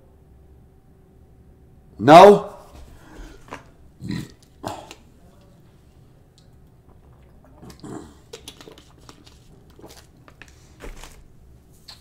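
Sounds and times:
person sipping and swallowing: 3.3s - 5.1s, 6.3s - 10.3s.

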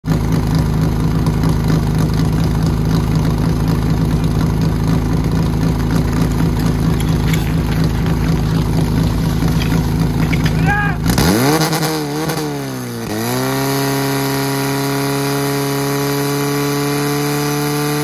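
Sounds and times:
fire pump engine running: 0.0s - 15.6s
faint clatters: 5.8s - 10.7s.

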